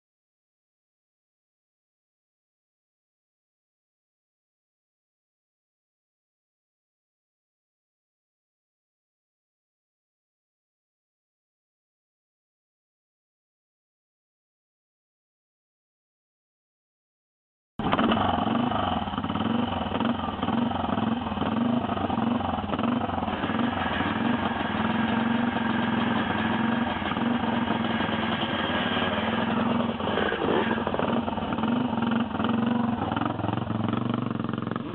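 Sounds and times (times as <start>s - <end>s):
motorcycle engine idling: 17.8s - 34.9s.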